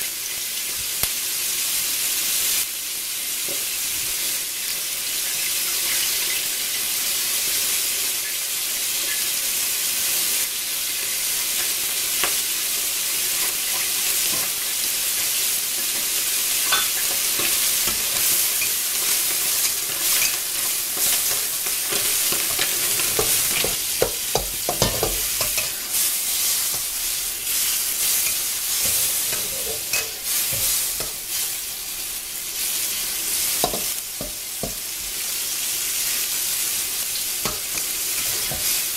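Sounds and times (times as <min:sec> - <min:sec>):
food sizzling in a pan: 0:00.0 - 0:38.9
spatula scraping a pan: 0:11.6 - 0:31.6, 0:37.4 - 0:38.9.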